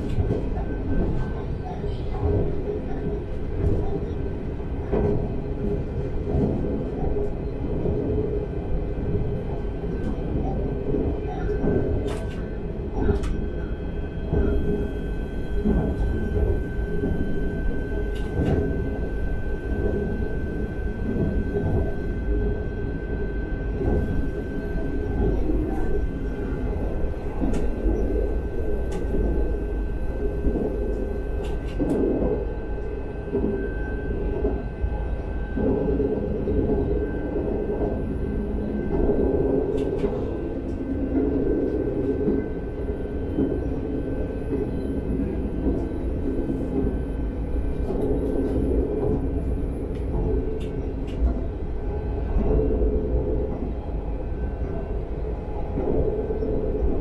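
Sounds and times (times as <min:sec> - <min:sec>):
train wheels rumbling on rail: 0:00.0 - 0:57.0
thin steady whine: 0:13.4 - 0:57.0.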